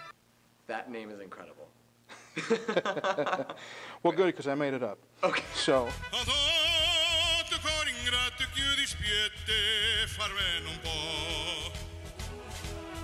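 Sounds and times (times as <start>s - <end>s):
man singing operatically: 5.5s - 11.9s.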